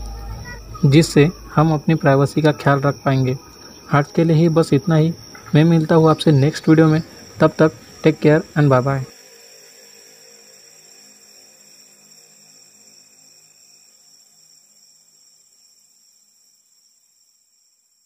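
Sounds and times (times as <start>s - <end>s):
high trill: 0.0s - 10.6s
low hum: 0.0s - 11.6s.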